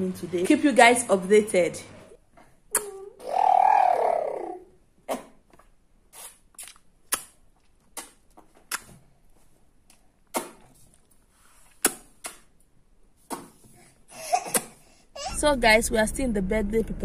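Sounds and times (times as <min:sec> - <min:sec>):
baby's hands slapping: 0:10.3 - 0:10.7, 0:14.4 - 0:14.8.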